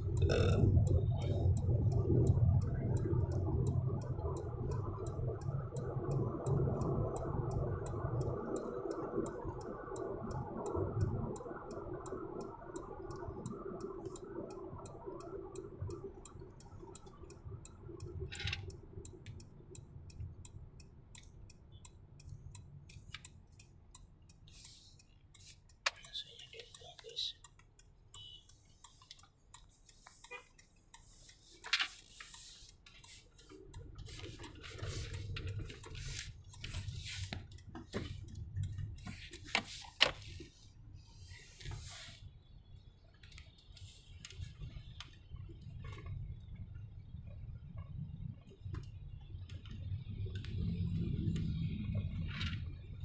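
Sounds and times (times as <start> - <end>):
indicator relay ticking: 0.0 - 53.0
tyre and engine rumble: 15.2 - 53.0.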